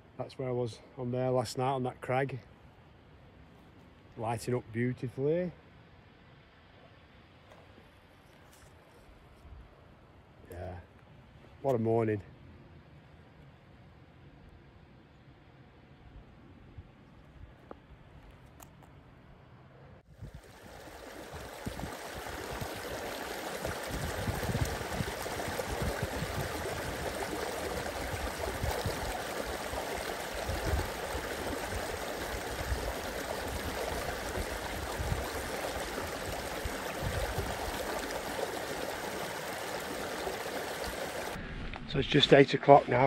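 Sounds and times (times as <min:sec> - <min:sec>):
running water rushing: 0:20.1 - 0:43.0
low irregular rumbles: 0:41.2 - 0:43.0.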